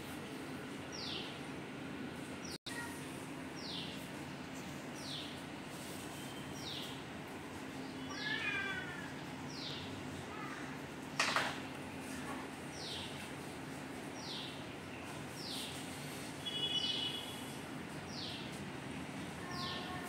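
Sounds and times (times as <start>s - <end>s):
cat meowing: 8.1s - 9.1s.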